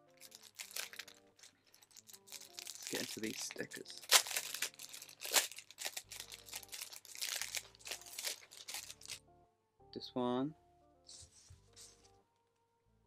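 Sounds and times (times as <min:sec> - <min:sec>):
packaging crinkling: 0:00.1 - 0:09.2.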